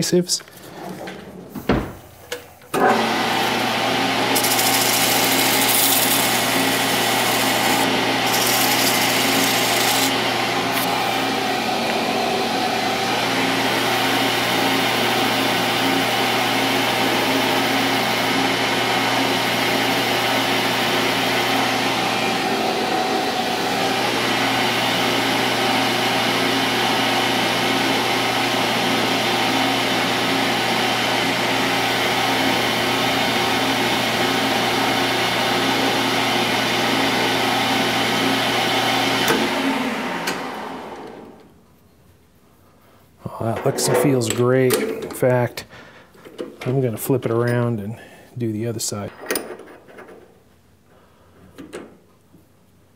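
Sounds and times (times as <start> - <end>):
metal lathe running: 2.8 - 39.6.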